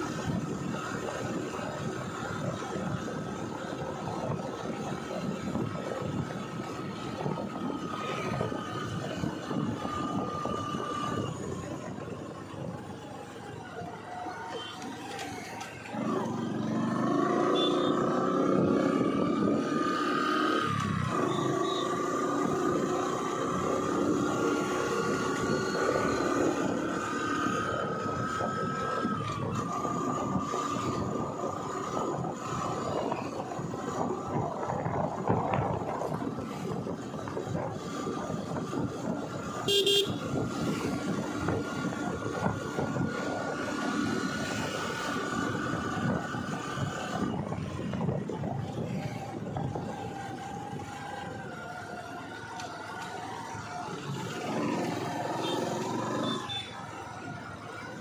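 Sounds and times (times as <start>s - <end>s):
road noise: 0.0s - 58.0s
vehicle engine: 0.0s - 58.0s
vehicle horn honk: 17.6s - 18.0s, 39.7s - 40.2s.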